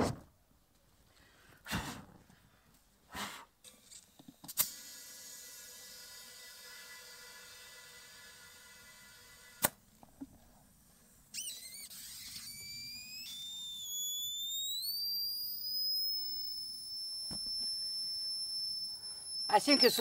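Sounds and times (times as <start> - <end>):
compressed air whistling from leak: 11.3 - 20.0.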